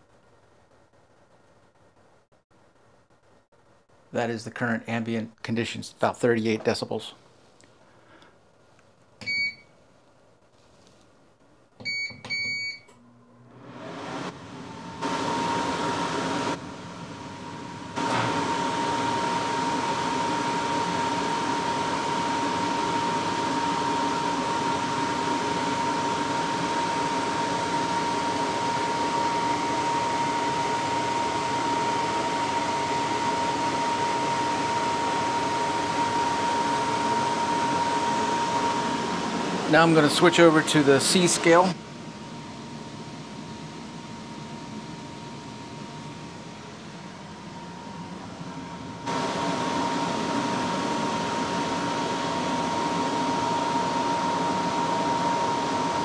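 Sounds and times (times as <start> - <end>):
dehumidifier fan running: 0.0 - 56.0
control panel beeps: 9.2 - 9.7, 11.8 - 12.9.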